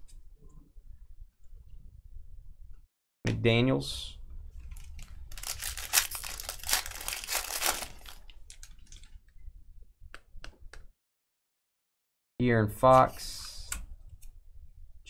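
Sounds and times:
card packaging crinkling: 4.7s - 9.1s.

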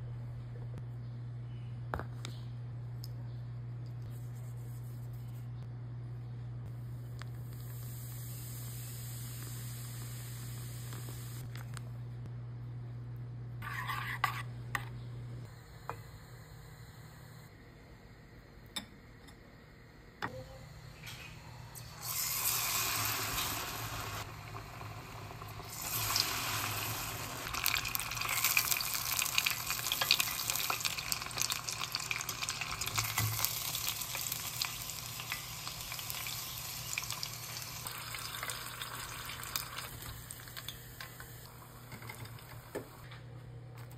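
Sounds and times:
deep-frying in hot oil: 7.5s - 11.4s, 21.8s - 43.0s.

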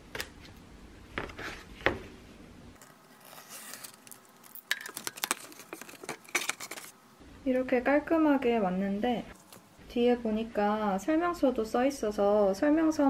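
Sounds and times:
cardboard tearing: 3.0s - 6.9s.

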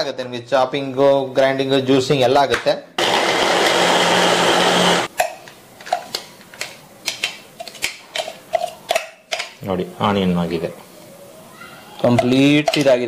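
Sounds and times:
blender chopper whirring: 3.0s - 5.1s.

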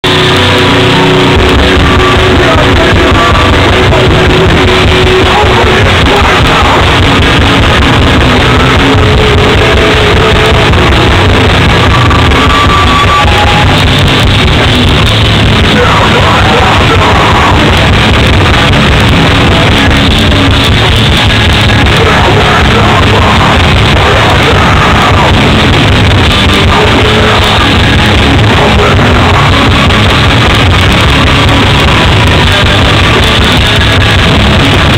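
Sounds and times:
hardcore band playing live: 0.0s - 34.9s
shouted vocals: 1.6s - 7.0s, 15.6s - 17.8s, 21.9s - 25.6s, 26.4s - 29.9s.

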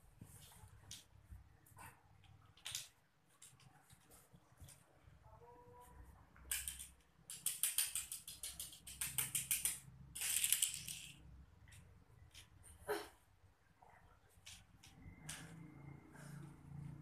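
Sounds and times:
toy car rattling on tiled floor: 6.5s - 11.3s.

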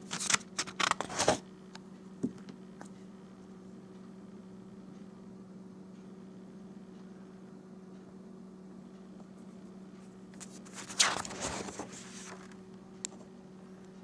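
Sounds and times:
paper page turning: 0.0s - 1.4s, 10.4s - 12.6s
steady low hum: 0.0s - 14.0s.

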